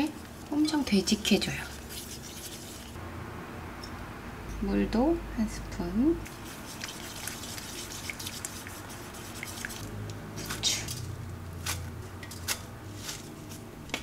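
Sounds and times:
chopsticks stirring batter: 0.0 - 3.0, 6.2 - 11.0.

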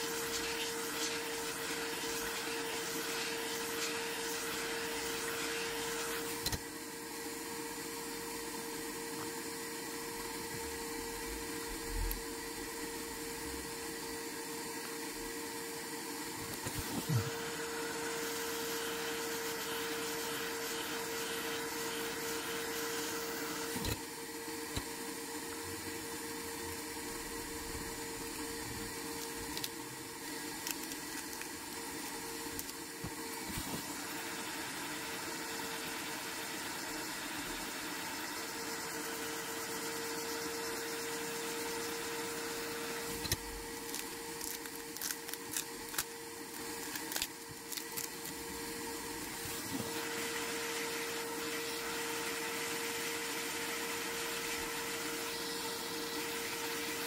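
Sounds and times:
hot air gun hissing: 0.0 - 6.6, 16.4 - 24.0.

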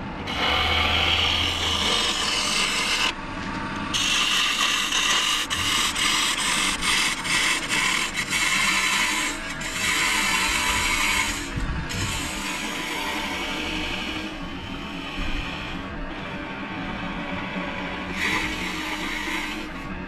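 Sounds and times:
lathe gouge shearing wood: 0.2 - 3.2, 3.9 - 20.0.

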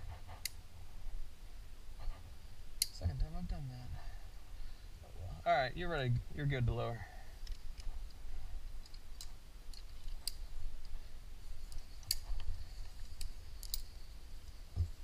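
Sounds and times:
carabiners clicking and clinking: 11.7 - 14.1.

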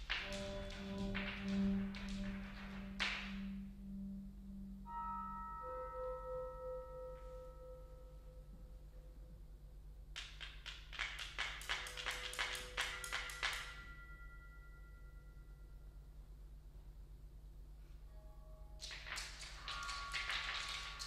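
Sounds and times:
pulsing middle note: 0.2 - 8.4
low held note: 0.2 - 9.4.

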